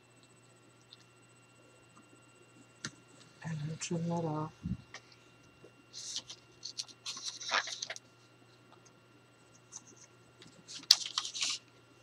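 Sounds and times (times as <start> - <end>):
blade scratching through paper: 6.0 - 8.0.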